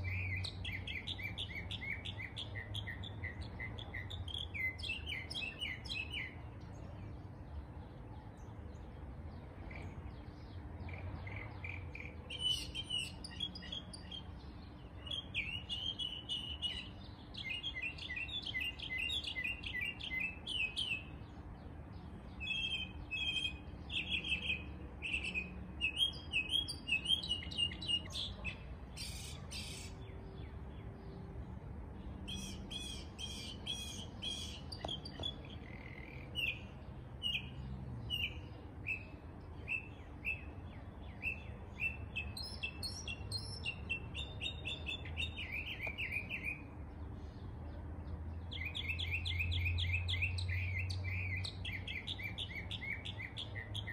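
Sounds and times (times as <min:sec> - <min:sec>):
songbirds chirping: 0:00.0 - 0:53.9.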